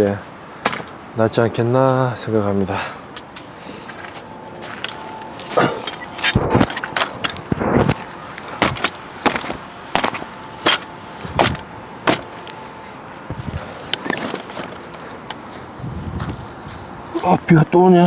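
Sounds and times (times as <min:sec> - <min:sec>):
camping gear clattering: 0:00.6 - 0:01.0, 0:03.2 - 0:12.5, 0:13.3 - 0:15.5.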